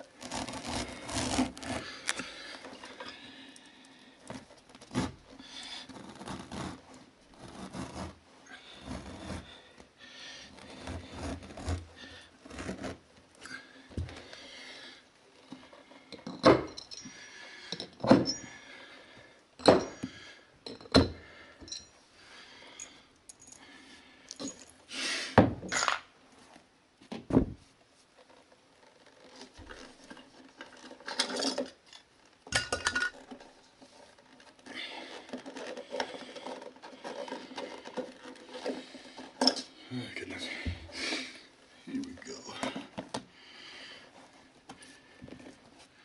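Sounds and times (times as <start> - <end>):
carpet rustling: 0.0 - 14.6.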